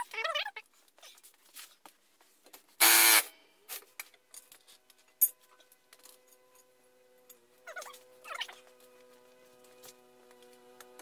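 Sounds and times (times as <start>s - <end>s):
impact wrench spinning: 2.8s - 3.3s.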